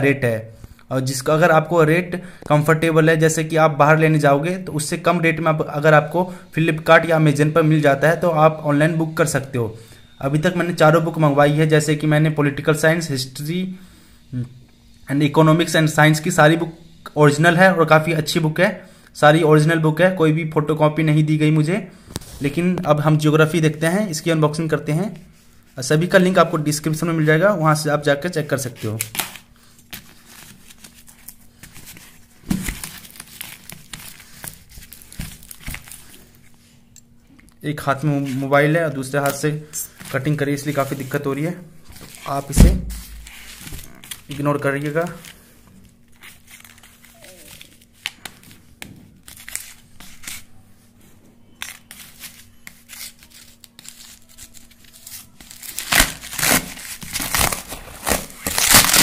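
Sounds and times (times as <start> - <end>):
tape and plastic ripping: 29.0 - 31.8, 51.6 - 59.0
razor blade cutting plastic strapping: 52.6 - 59.0
cardboard box crinkling and rustling: 55.4 - 59.0.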